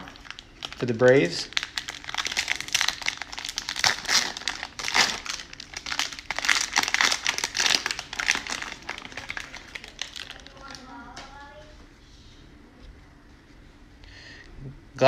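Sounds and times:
cellophane wrapper crinkling and tearing: 0.0s - 10.9s.

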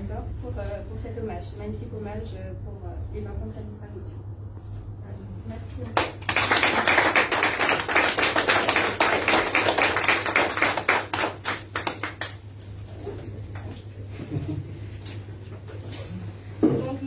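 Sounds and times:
audience applauding: 6.0s - 12.4s.

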